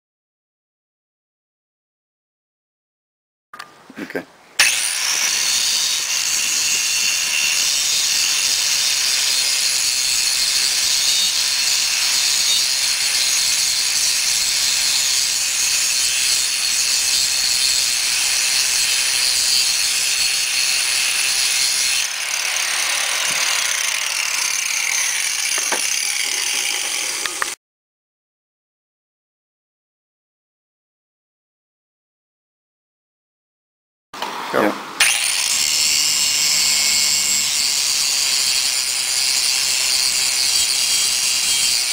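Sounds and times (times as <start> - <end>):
angle grinder grinding steel: 4.6 - 27.6, 35.0 - 41.9.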